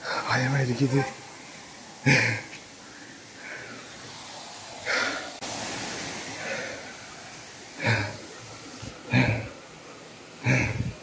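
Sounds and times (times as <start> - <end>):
steady rushing hiss: 0.0 - 11.0
man breathing out hard: 4.8 - 5.4, 10.4 - 11.0.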